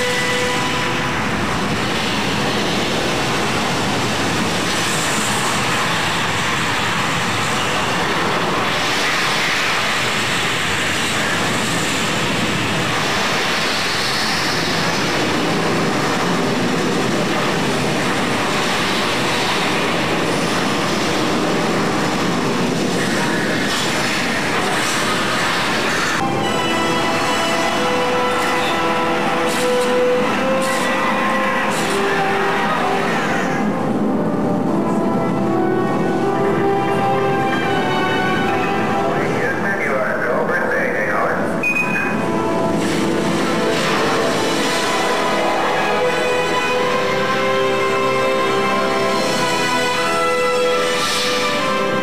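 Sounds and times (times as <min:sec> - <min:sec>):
rocket engine roar through speakers: 0:00.0 - 0:37.6.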